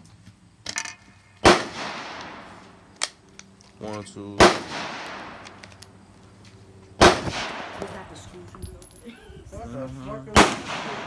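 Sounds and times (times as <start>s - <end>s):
gunshot: 1.4s - 2.5s, 4.4s - 5.4s, 7.0s - 8.0s, 10.4s - 11.0s.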